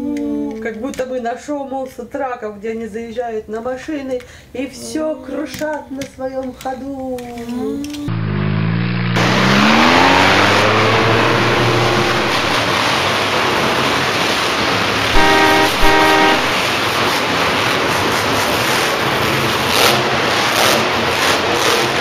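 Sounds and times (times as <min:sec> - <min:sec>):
engine revving: 0:08.1 - 0:14.3, 0:15.1 - 0:16.7
car horn honks: 0:15.2 - 0:16.7.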